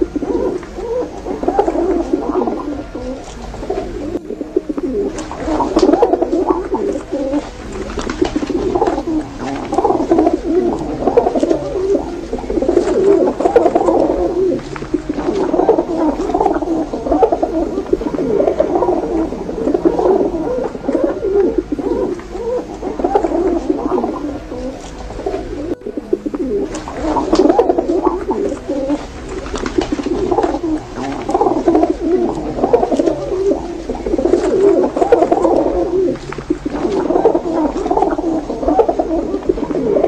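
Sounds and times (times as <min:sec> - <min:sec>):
pigeons cooing: 0:00.0 - 0:40.0.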